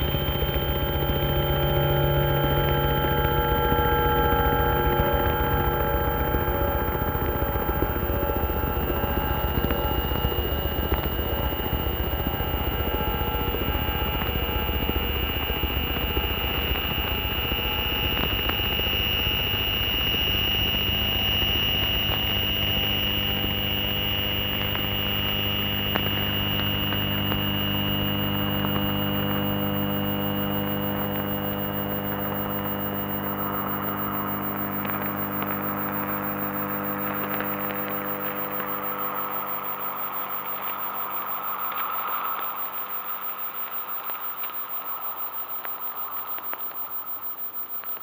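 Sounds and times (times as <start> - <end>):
piercing high tone: 0.0 - 42.4
bright hiss: 8.9 - 43.2.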